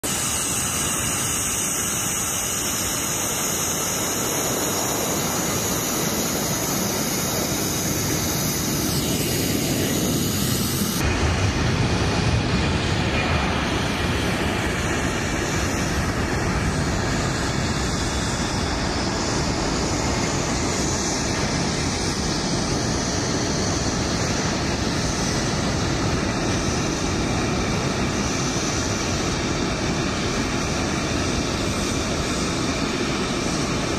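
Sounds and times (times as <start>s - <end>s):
jet engines roaring at takeoff: 0.0s - 33.9s.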